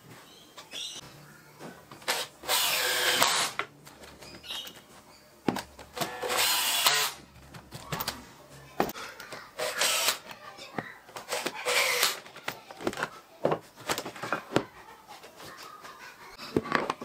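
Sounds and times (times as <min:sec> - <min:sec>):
drill boring into wood: 0:02.1 - 0:03.6, 0:06.0 - 0:07.2, 0:09.6 - 0:10.2, 0:11.3 - 0:12.2.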